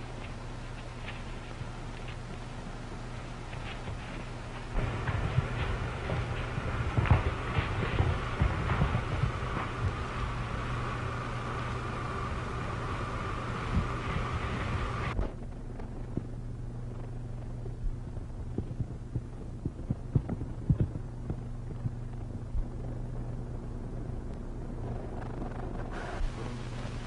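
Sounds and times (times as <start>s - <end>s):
film soundtrack hum and hiss: 0.0s - 27.0s
clicks and pops of surface noise: 18.5s - 22.7s.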